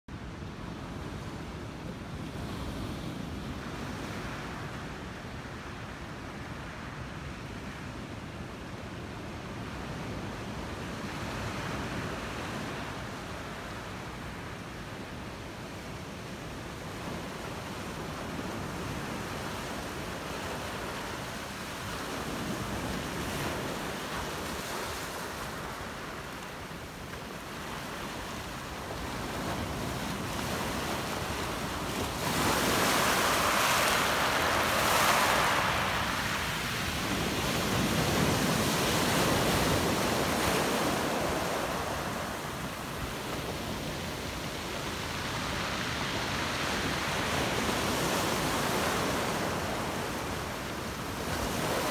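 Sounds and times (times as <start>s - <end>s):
ocean surf breaking: 17.2s - 51.9s.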